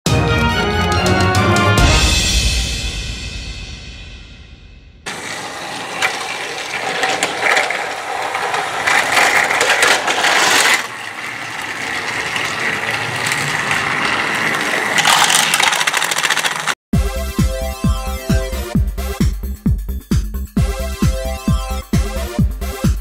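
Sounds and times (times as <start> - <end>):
toy train motors whirring: 5.1 - 16.8
wheels clicking over track joints: 5.1 - 16.8.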